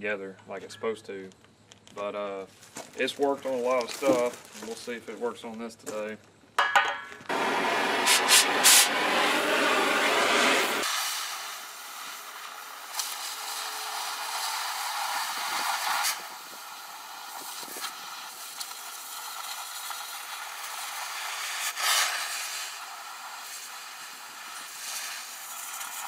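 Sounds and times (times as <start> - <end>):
torch pops and spits: 7.2 - 26.0
cutting torch hissing: 7.3 - 26.0.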